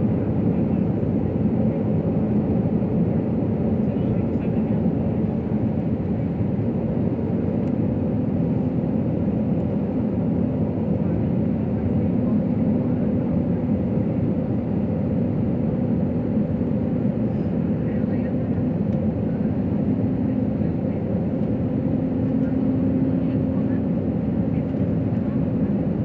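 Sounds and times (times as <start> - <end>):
jet cabin engine drone: 0.0 - 26.0.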